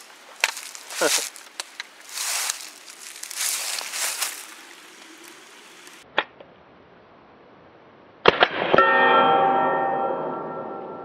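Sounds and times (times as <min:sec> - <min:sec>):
steel target ringing: 0:08.7 - 0:11.0.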